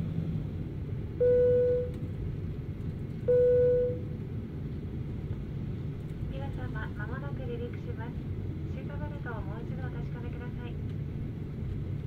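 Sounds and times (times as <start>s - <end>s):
low rumble of aircraft cabin: 0.0s - 12.0s
single-tone cabin chime: 3.3s - 4.0s.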